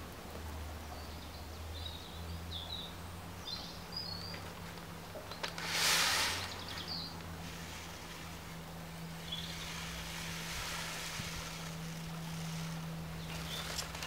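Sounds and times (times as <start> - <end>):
steady low hum: 0.0 - 14.0
small bird chirping: 0.9 - 5.7, 6.4 - 7.3, 9.0 - 10.4, 11.6 - 14.0
brief rushing hiss: 5.6 - 8.5.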